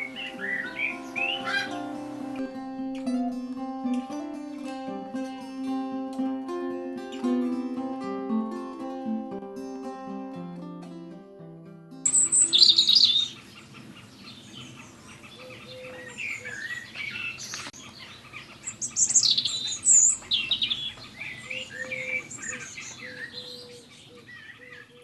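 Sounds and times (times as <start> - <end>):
songbirds chirping: 0.0 - 2.6, 12.1 - 25.0
acoustic guitar: 0.0 - 13.3.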